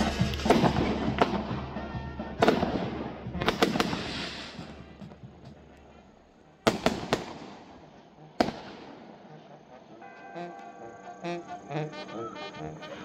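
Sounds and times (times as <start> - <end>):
fireworks bangs: 0.0 - 5.8, 6.6 - 9.3
fireworks crackling hiss: 0.0 - 13.0.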